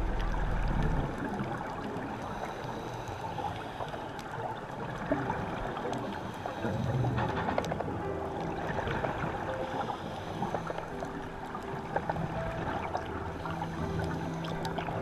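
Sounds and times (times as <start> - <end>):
low rumble: 0.0 - 2.0
muffled underwater rushing hiss: 0.0 - 15.0
faint clicks: 0.1 - 8.6.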